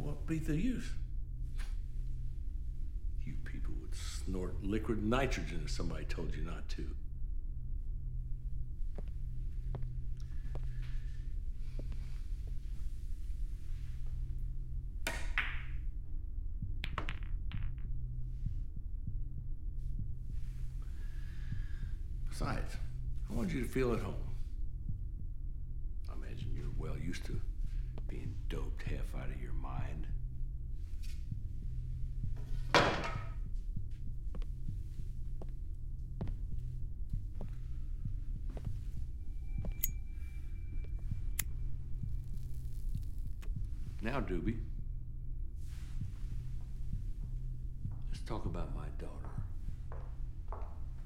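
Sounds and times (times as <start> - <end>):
low throbbing drone: 0.0 - 15.1, 15.7 - 51.0
billiard balls clicking: 16.8 - 17.8.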